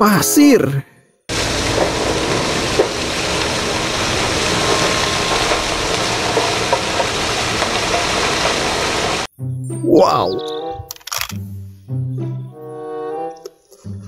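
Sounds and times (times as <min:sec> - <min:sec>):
diesel engine running: 0:01.3 - 0:09.3
rock sliding off truck bed: 0:01.3 - 0:09.3.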